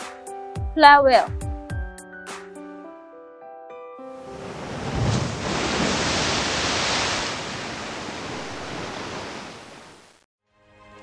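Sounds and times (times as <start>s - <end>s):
ocean wave breaking: 4.2s - 10.2s.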